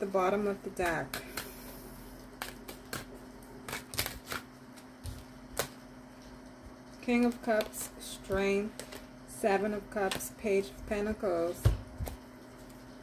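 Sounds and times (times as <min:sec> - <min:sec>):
cards snapping and tapping: 0:02.4 - 0:03.1, 0:03.7 - 0:05.8.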